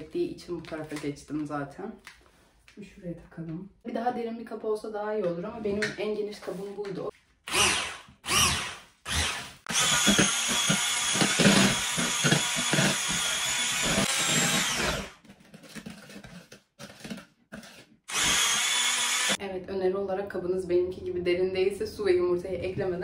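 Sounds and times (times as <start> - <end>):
electric hand mixer whining: 7.5 - 15.2, 18.1 - 19.4.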